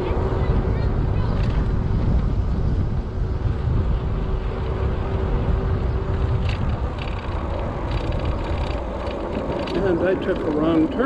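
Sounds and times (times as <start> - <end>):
tyre noise on asphalt: 0.0 - 11.0
wind buffeting microphone: 0.0 - 11.0
rapid ticking: 5.8 - 11.0.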